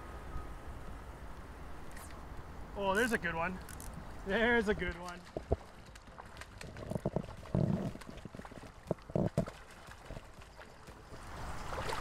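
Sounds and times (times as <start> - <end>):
fish splashing in water: 4.9 - 12.0.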